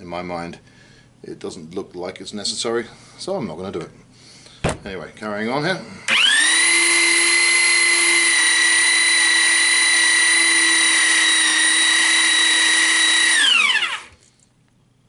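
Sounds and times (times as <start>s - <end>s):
die cutting pipe threads: 6.1s - 14.2s
pipe threader motor whining: 6.1s - 14.2s.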